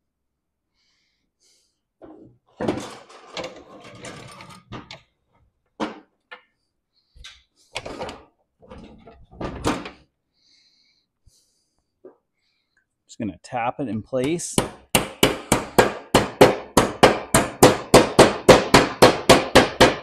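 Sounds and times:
metal knocks and clunks: 2.0s - 5.0s, 7.8s - 10.0s.

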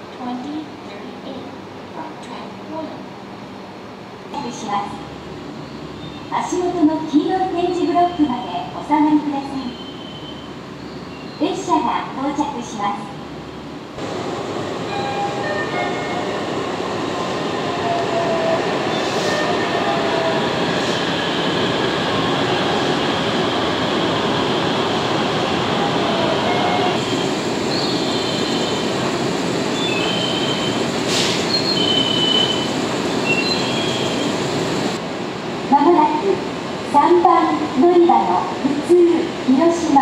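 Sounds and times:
train rumble: 3.8s - 40.0s
brief hisses: 31.1s - 31.6s.

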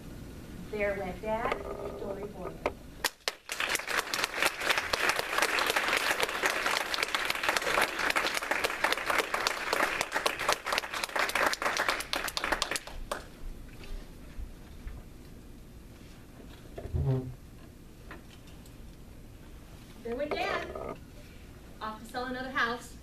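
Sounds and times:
audience applauding: 3.0s - 13.3s.

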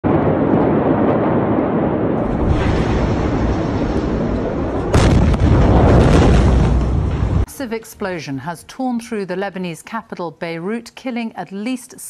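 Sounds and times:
explosion boom rumbling: 0.0s - 7.5s.

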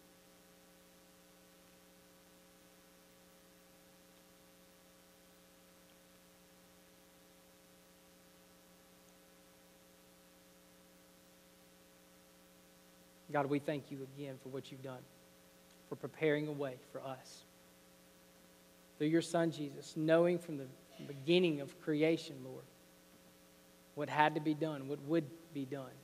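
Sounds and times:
faint electrical hum: 0.0s - 26.0s.

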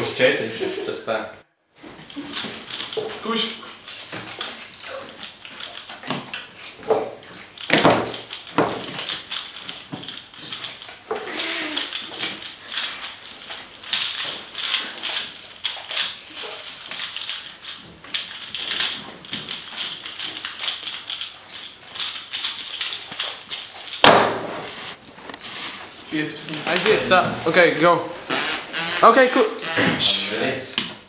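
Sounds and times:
thump: 24.0s - 24.7s.

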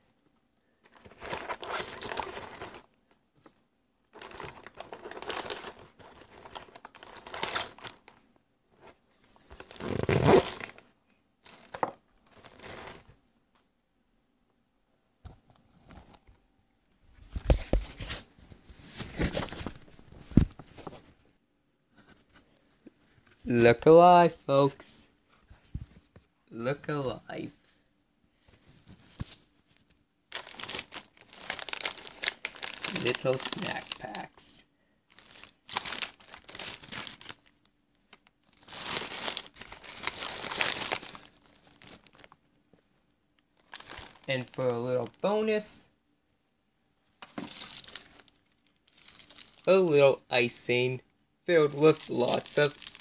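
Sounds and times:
plastic wrappers crinkling: 0.8s - 2.9s, 4.1s - 8.2s, 8.8s - 13.1s, 30.3s - 34.4s, 35.1s - 42.5s, 43.4s - 45.3s, 47.2s - 49.7s, 51.7s - 53.0s.

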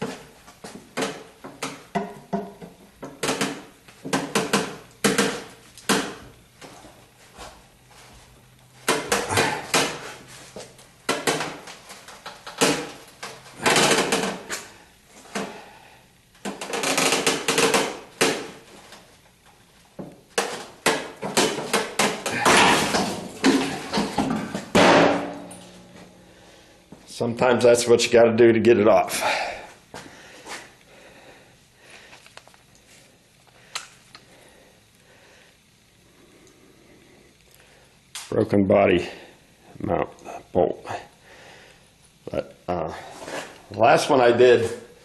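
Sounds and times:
hand tools clicking and knocking: 0.0s - 6.2s, 8.8s - 10.1s, 11.0s - 14.7s, 16.4s - 18.6s, 20.0s - 25.7s.

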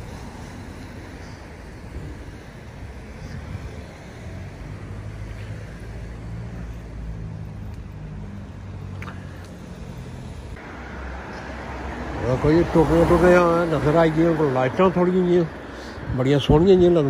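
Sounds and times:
vehicle engine drone: 0.0s - 14.8s
road traffic hum on wet street: 0.0s - 17.0s.

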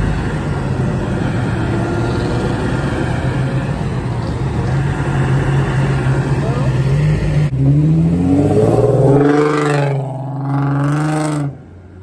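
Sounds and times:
car passing: 0.0s - 12.0s
truck passing: 0.0s - 12.0s.

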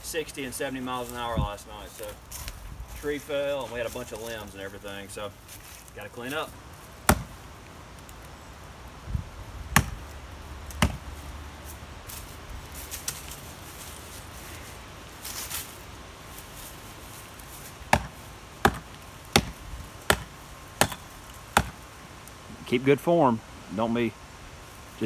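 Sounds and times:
axe chopping tree trunk: 7.0s - 7.4s, 9.7s - 10.1s, 10.7s - 11.1s, 17.9s - 21.8s.

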